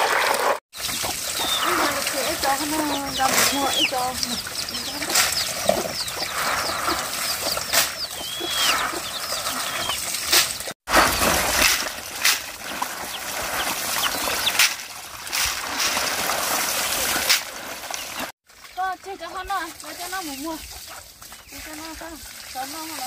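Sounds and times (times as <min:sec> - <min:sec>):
water splashing and trickling: 0:00.0 - 0:23.0
splashy knocks: 0:10.1 - 0:18.3.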